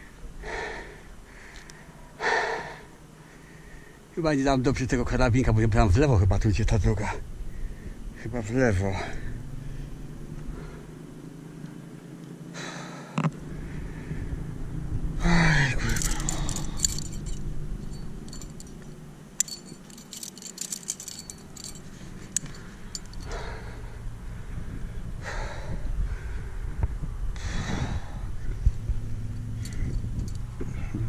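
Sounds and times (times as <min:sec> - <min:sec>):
hard breathing: 0:00.0 - 0:04.1, 0:10.5 - 0:11.0, 0:12.6 - 0:14.4, 0:15.2 - 0:18.7, 0:19.4 - 0:26.8, 0:27.4 - 0:28.7
man grunting: 0:15.2 - 0:16.4
climbing gear jingling and clicking: 0:15.5 - 0:23.6, 0:29.3 - 0:31.0.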